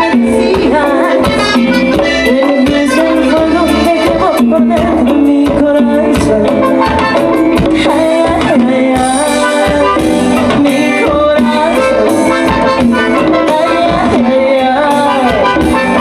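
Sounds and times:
live band music: 0.0s - 16.0s
sliding melodic lead line: 0.0s - 16.0s
steady drum beat: 0.0s - 16.0s.

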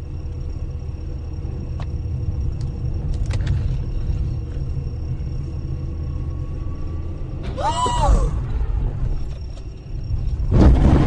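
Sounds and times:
car driving low rumble: 0.0s - 11.0s.

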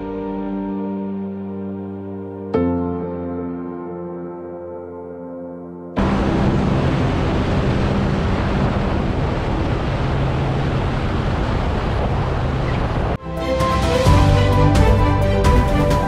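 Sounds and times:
soft music: 0.0s - 9.5s, 13.2s - 16.0s
wind rushing over camera: 6.0s - 13.2s
drone engine and propeller hum: 6.0s - 16.0s.

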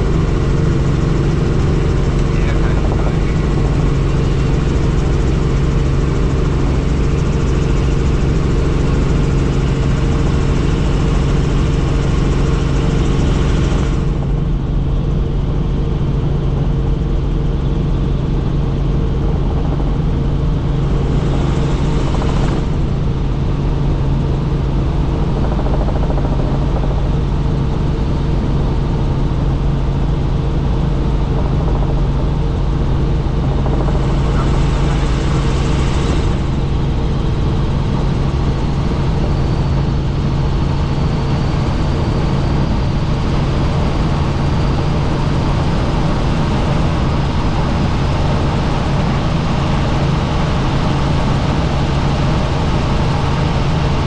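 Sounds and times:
helicopter rotor and engine drone: 0.0s - 54.0s.

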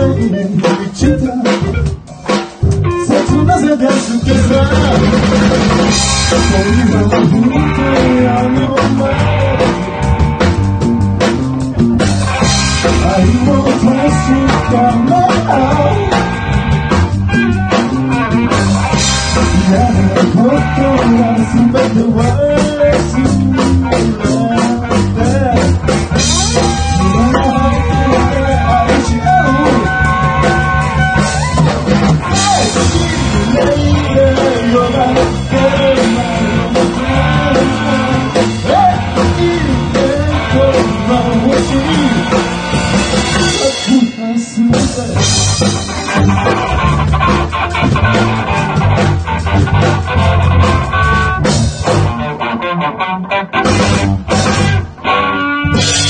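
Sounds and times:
man singing lead vocal: 0.0s - 2.0s, 2.8s - 10.1s, 12.8s - 16.6s, 19.2s - 42.6s, 43.2s - 45.6s
bass guitar: 0.0s - 56.0s
drum kit: 0.0s - 56.0s
electric guitar: 0.0s - 56.0s.

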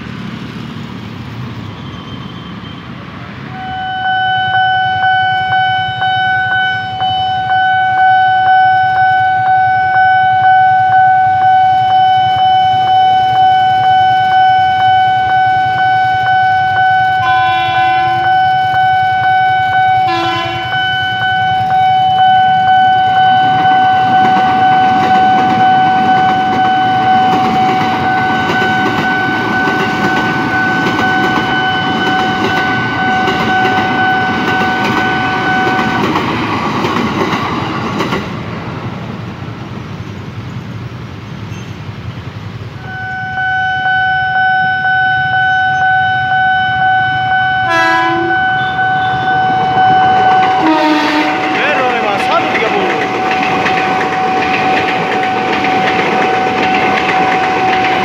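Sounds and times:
train rumbling past: 0.0s - 58.0s
train horn blast: 3.5s - 11.7s, 14.3s - 29.8s, 42.8s - 53.9s
level-crossing alarm pulsing: 3.5s - 36.5s, 42.8s - 58.0s.

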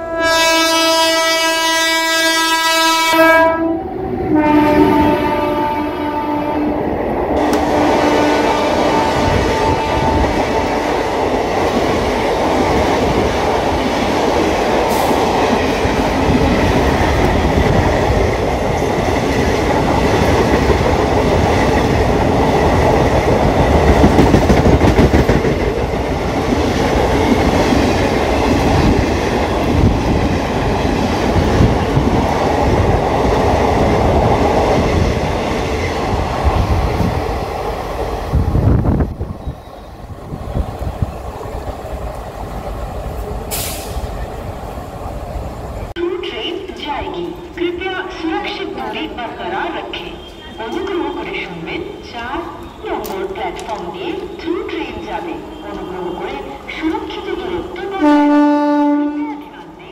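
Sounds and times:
locomotive horn: 0.0s - 6.8s, 7.4s - 11.1s, 58.0s - 59.5s
train wheels on rails: 6.8s - 58.2s.

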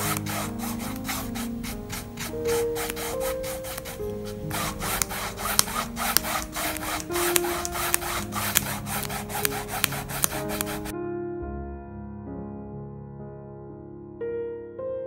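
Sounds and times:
paintbrush scrubbing on canvas: 0.0s - 10.9s
soft background music: 0.0s - 15.0s.

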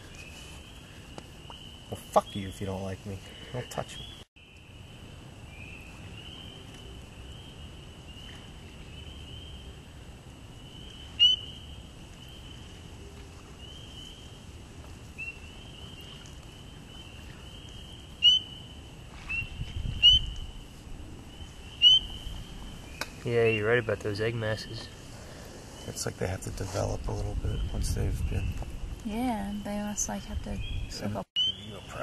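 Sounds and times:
chorus of frogs peeping: 0.0s - 26.4s, 30.5s - 32.0s
single loud frog calls: 10.6s - 12.6s, 15.2s - 20.7s, 21.3s - 23.1s.

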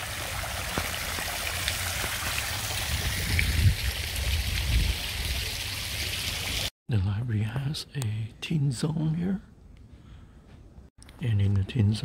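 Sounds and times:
fountain water splashing: 0.0s - 6.7s.

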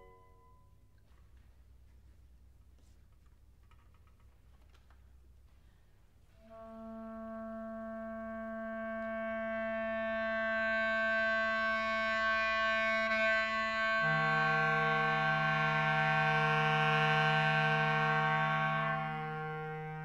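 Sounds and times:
woodwind trio holding notes: 6.4s - 20.0s.

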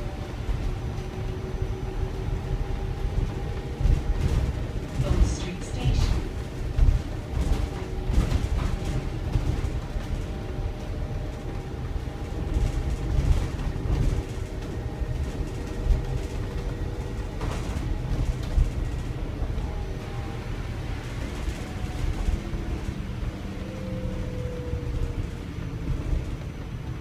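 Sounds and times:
bus road rumble: 0.0s - 27.0s
body knocks and rattles: 3.0s - 5.2s, 6.2s - 19.7s.

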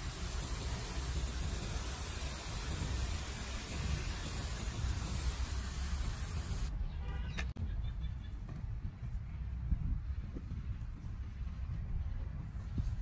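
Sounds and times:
spray nozzle hissing: 0.0s - 6.7s.

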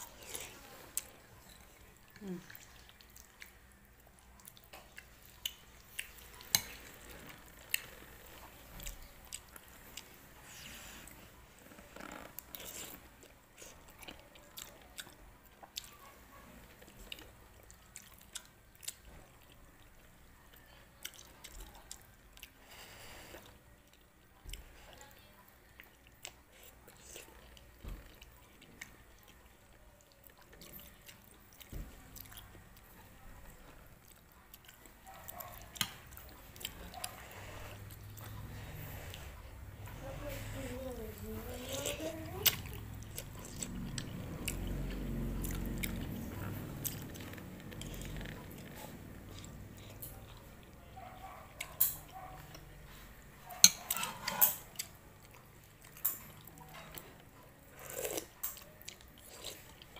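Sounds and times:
person chewing: 0.0s - 11.2s, 11.8s - 24.6s, 25.6s - 32.6s, 33.7s - 52.7s, 53.5s - 59.9s.

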